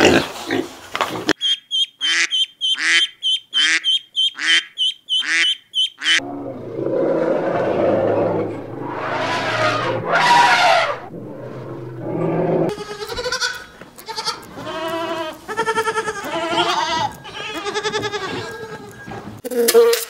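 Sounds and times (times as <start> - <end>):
elephants calling: 6.0 - 12.7
goats bleating: 12.7 - 19.1.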